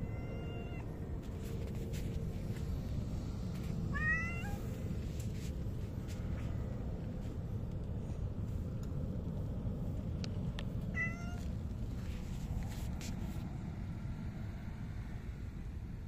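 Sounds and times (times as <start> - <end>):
cat meowing: 0.0 - 0.8, 3.9 - 4.6, 10.9 - 11.4
low background noise: 0.0 - 16.0.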